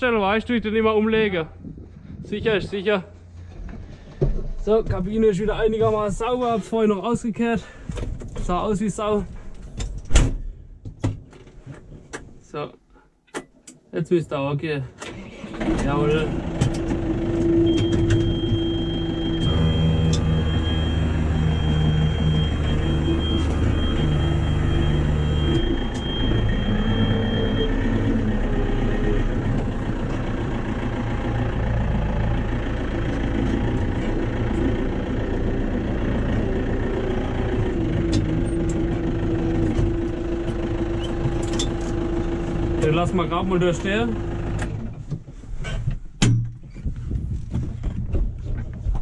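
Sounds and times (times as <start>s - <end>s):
tractor diesel engine running: 0.0s - 9.8s, 15.1s - 45.5s
steady high-pitched tone: 17.7s - 28.3s.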